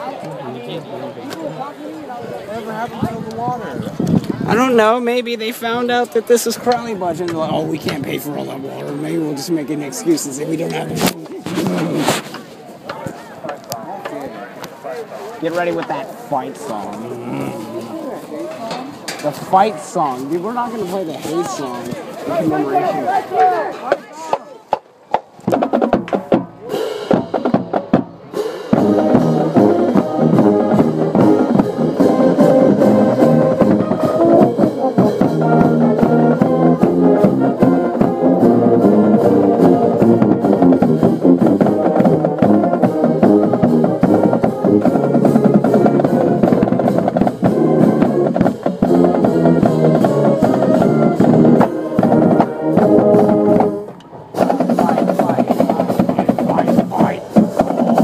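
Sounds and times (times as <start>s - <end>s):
marching band playing: 1.6s - 58.0s
drum strokes: 23.4s - 58.0s.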